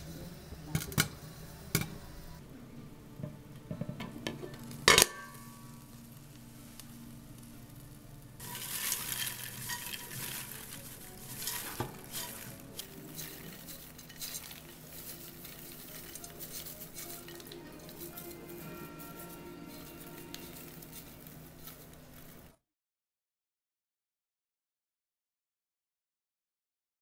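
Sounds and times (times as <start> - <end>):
faint background music: 0.0 - 22.6
pot rim knocking and scraping: 3.2 - 6.0, 8.4 - 22.5
popcorn pouring into glass dish: 4.0 - 22.6.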